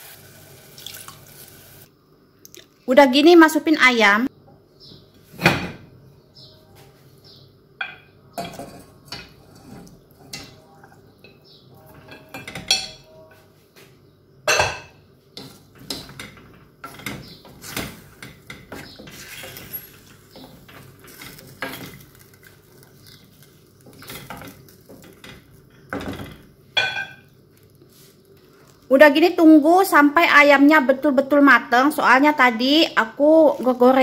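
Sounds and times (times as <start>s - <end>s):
wooden spoon stirring in a pot: 8.6s - 11.1s, 15.4s - 26.6s
plate and spoon clinking on pot: 23.9s - 27.3s.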